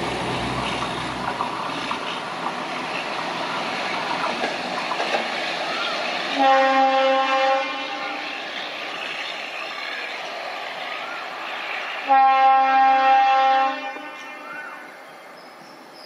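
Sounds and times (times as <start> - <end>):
railcar running on track: 0.0 - 16.0
railcar horn blasts: 6.4 - 8.3, 12.0 - 14.8.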